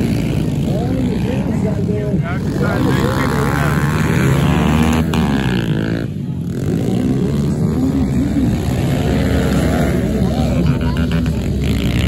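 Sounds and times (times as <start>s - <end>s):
pit bike engines revving: 0.0s - 12.0s.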